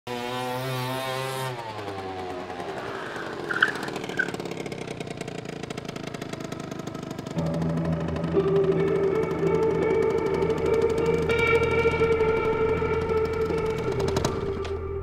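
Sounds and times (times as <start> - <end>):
motor scooter engine revving: 0.1 - 15.0
short high squeaks: 2.8 - 5.0.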